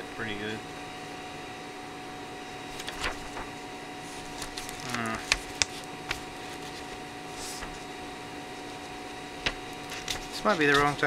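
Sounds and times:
steady hum: 0.0s - 11.0s
stencil sheet crackling: 2.7s - 7.9s, 8.6s - 11.0s.

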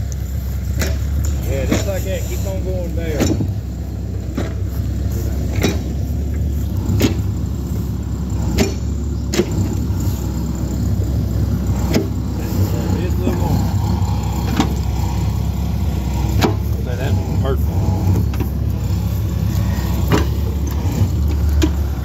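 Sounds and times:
diesel engine running: 0.0s - 22.0s
sharp knocks: 5.5s - 7.4s, 8.5s - 9.9s, 14.4s - 14.9s, 16.3s - 16.8s, 20.0s - 21.8s.

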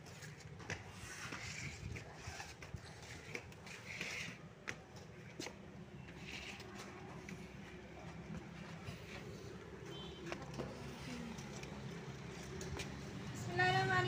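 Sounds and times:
faint footsteps climbing stairs: 0.0s - 13.6s.

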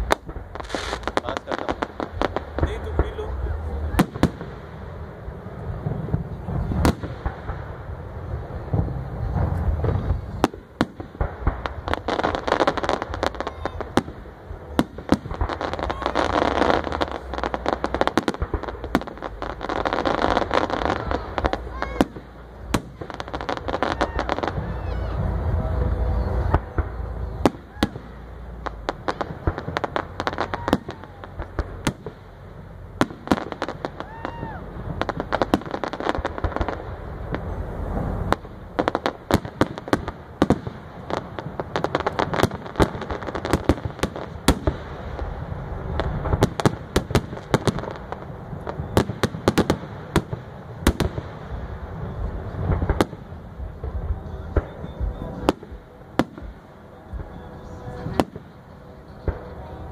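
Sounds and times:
low rumble: 0.0s - 39.3s
fireworks bangs and crackles: 0.0s - 59.9s.

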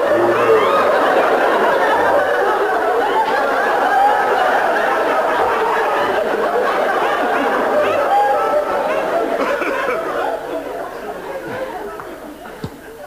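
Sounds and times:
audience laughing: 0.0s - 13.0s.

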